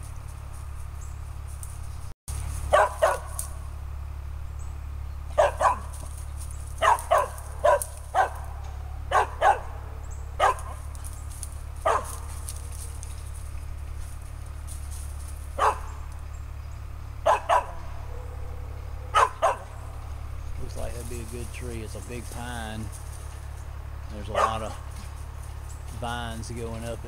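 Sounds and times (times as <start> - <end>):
dog barking: 2.7 - 3.6, 5.3 - 6.0, 6.8 - 10.9, 11.8 - 12.7, 15.6 - 16.0, 17.2 - 19.8, 24.3 - 24.9.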